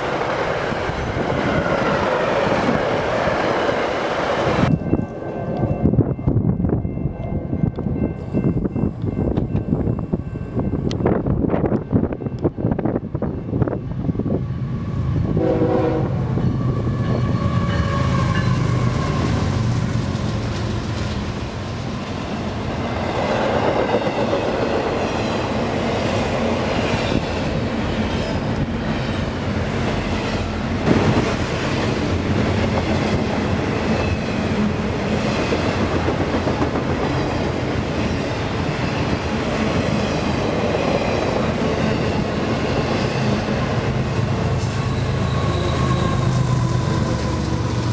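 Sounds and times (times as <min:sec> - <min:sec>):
train rumble and wheel clatter: 0:00.0 - 0:47.9
train horn: 0:15.2 - 0:19.6, 0:44.6 - 0:47.9.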